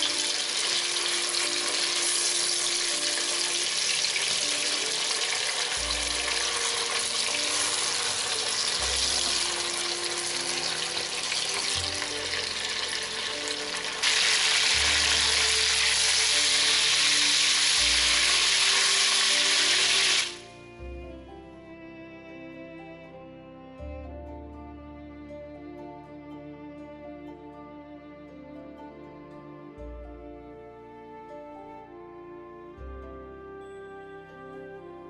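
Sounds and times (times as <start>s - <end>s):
meat sizzling in a pan: 0.0s - 20.4s
background music: 0.0s - 35.0s.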